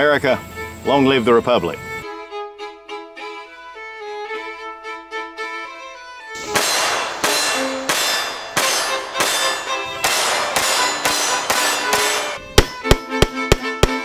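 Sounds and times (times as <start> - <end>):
background music: 0.0 - 14.0
loud crashing clanging hits: 6.4 - 12.8
sharp loud cracks: 6.4 - 14.0.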